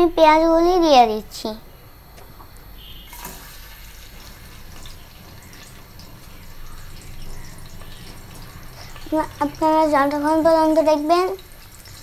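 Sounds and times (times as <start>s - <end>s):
onions sizzling in hot oil: 3.1s - 12.0s.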